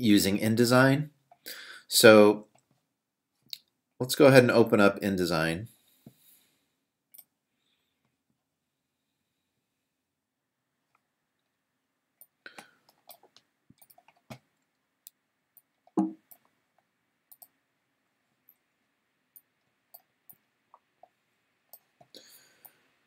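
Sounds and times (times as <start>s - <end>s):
computer mouse clicks: 12.2s - 16.5s, 17.3s - 17.6s.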